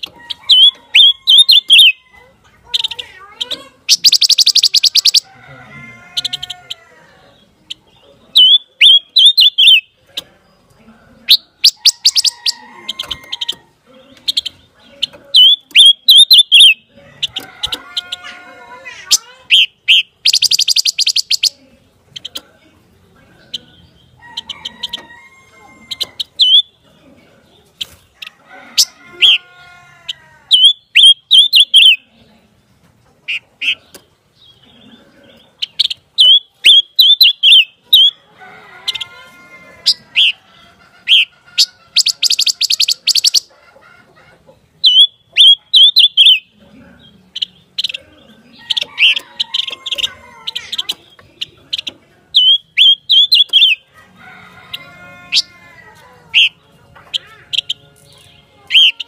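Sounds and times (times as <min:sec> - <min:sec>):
bird singing bright notes: 0:30.5 - 0:32.0, 0:35.4 - 0:38.2, 0:50.6 - 0:53.8.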